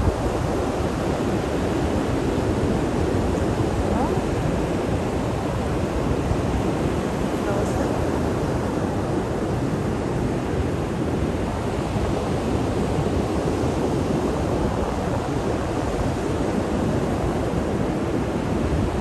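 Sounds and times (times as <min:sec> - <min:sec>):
wind rumbling on microphone: 0:00.0 - 0:19.0.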